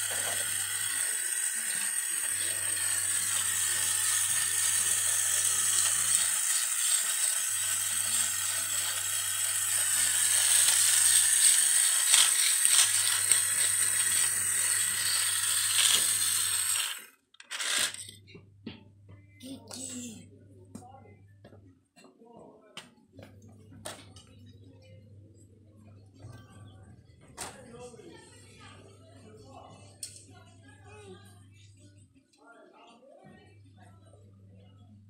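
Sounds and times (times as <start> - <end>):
toy motor whining: 0.0 - 18.2.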